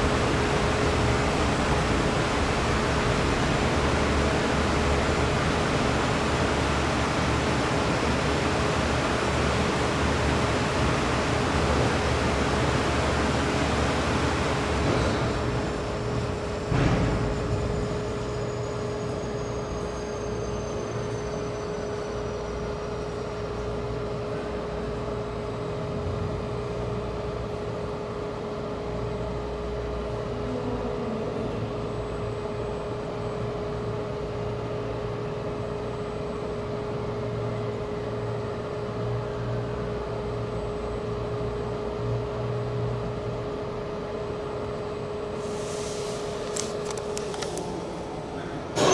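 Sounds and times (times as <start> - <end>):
steady hum: 0.0 - 19.3, 43.0 - 48.9
fans whining spinning down: 0.0 - 48.9
fans rushing air: 45.4 - 48.9.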